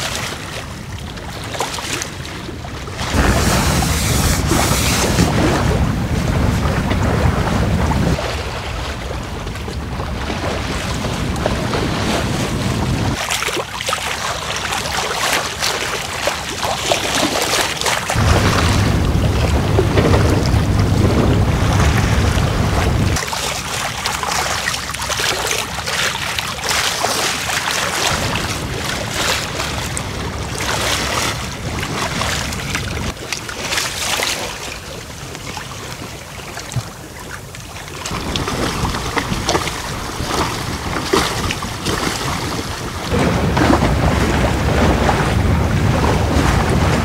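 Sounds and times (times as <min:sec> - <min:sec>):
water rushing along hull: 0:00.0 - 0:47.0
wind buffeting microphone: 0:03.1 - 0:13.2, 0:18.1 - 0:23.2, 0:37.9 - 0:47.0.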